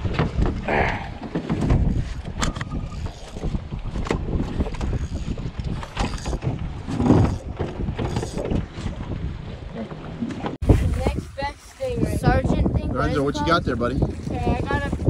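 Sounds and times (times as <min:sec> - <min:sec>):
wind buffeting microphone: 0:00.0 - 0:15.0
cloth rubbing on microphone: 0:10.6 - 0:12.5.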